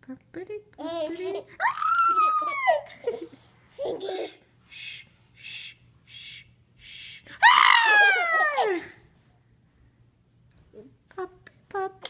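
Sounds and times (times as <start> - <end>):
baby laughing: 0.8 - 4.5.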